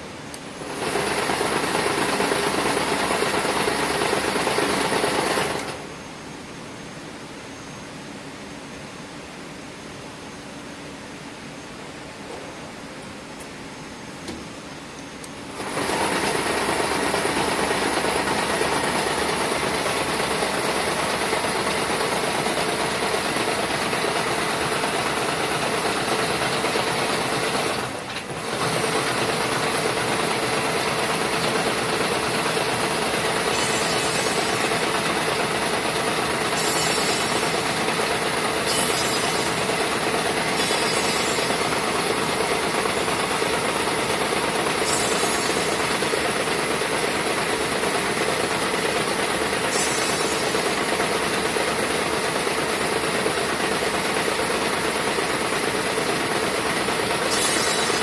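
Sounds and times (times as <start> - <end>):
braiding machine clatter: 15.6 - 58.0.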